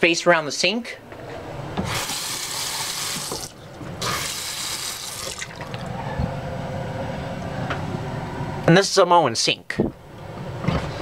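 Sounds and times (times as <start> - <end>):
exhaust fan hum: 0.0 - 11.0
faucet running into sink: 1.9 - 5.8.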